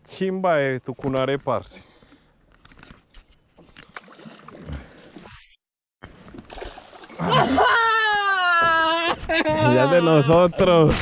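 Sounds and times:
faint water splashing: 0:03.5 - 0:08.3
person crying out: 0:07.2 - 0:10.1.

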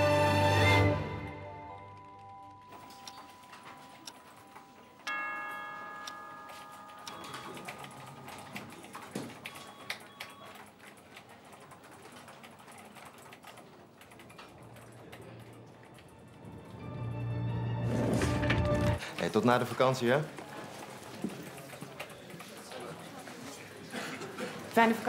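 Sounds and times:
clock ticking: 0:01.8 - 0:16.5
keyboards typing: 0:01.8 - 0:16.8, 0:18.7 - 0:23.3.

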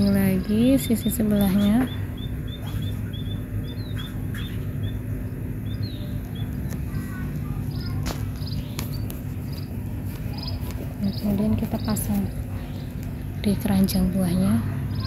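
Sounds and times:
steady low hum: 0:00.0 - 0:15.0
small bird chirping: 0:00.8 - 0:07.0, 0:07.6 - 0:13.0.

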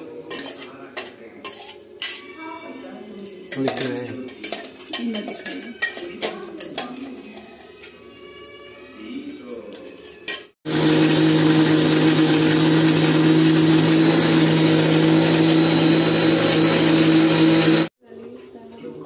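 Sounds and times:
mixer grinder humming and whining: 0:10.6 - 0:17.9.

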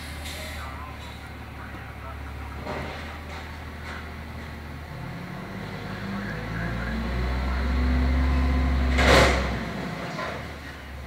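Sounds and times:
garbage truck engine revving: 0:00.0 - 0:11.0
container crashing into truck: 0:08.9 - 0:10.5.

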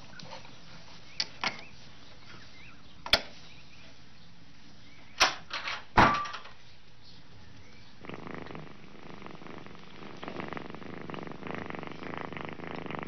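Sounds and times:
cat purring: 0:08.0 - 0:13.0.

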